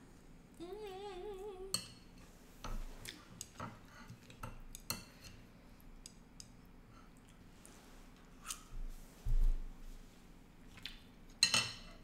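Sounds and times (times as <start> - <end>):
woman humming with mouth full: 0.6 - 1.8.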